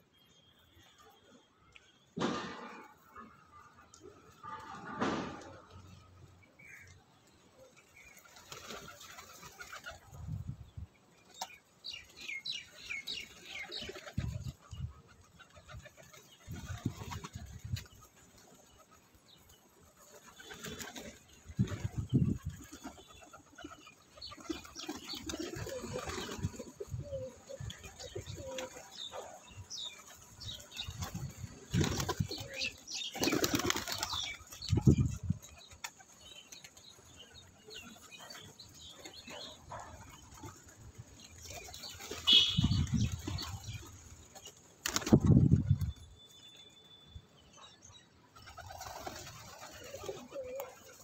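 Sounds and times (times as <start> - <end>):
pigeon wings flapping: 8.2 - 10.1, 20.0 - 22.0, 23.6 - 26.9, 30.7 - 34.6, 40.2 - 45.6, 48.5 - 51.0
pigeons cooing: 23.1 - 29.4, 48.5 - 51.0.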